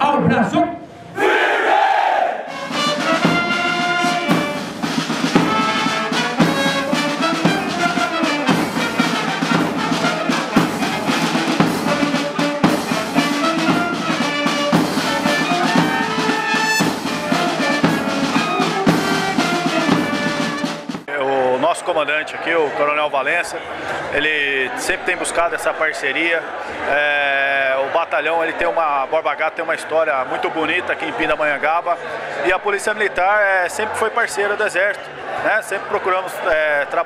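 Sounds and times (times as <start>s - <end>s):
brass band playing a march: 2.5s - 21.1s
drums beating: 2.5s - 21.1s.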